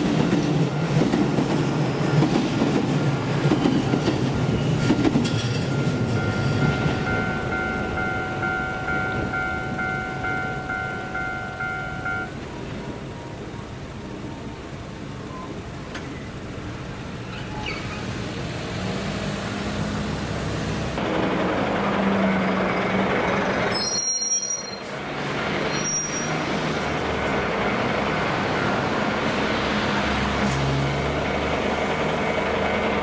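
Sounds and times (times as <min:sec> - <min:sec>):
car and truck engines passing: 0:16.3 - 0:23.7, 0:26.3 - 0:33.0.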